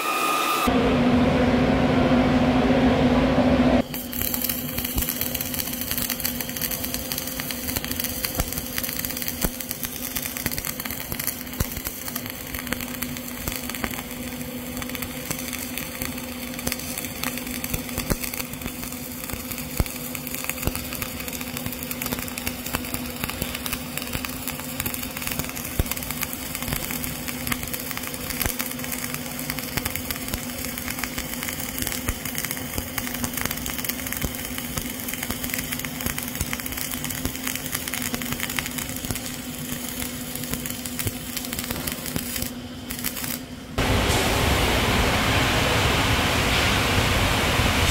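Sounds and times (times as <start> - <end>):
steady low hum: 0.7 - 28.3, 38.7 - 47.9
welding arc crackling and hissing: 3.8 - 47.9.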